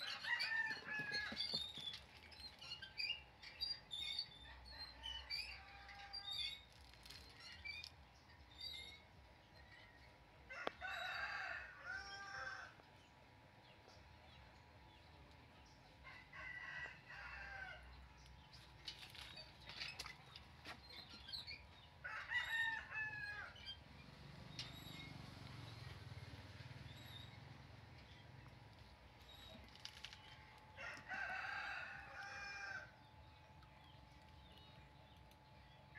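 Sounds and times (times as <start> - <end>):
rooster crowing: 10.5 - 12.8, 22.0 - 23.6, 30.8 - 33.0.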